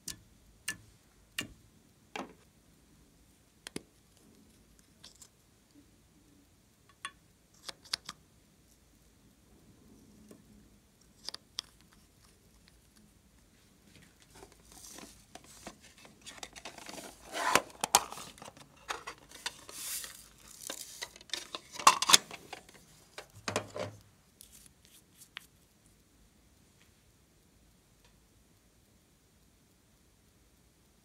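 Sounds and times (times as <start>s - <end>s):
plastic makeup case rummaged: 14.2s - 24.0s.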